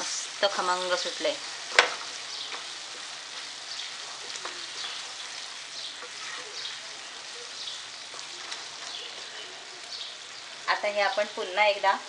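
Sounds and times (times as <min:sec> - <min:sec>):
food sizzling in a pan: 0:00.0 - 0:12.0
wooden spatula scraping pan: 0:06.0 - 0:06.8.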